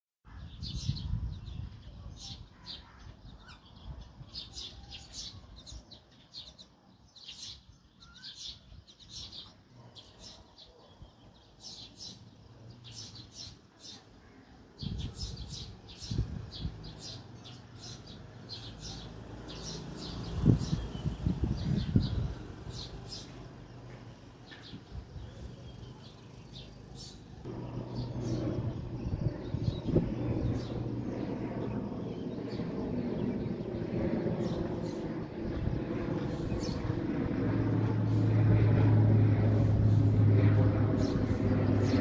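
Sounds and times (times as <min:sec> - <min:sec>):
low rumbling noise: 0:27.5 - 0:42.0.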